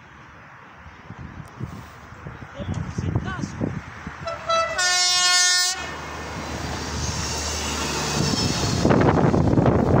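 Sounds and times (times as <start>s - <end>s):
train passing: 0.0s - 10.0s
train horn: 4.2s - 6.0s.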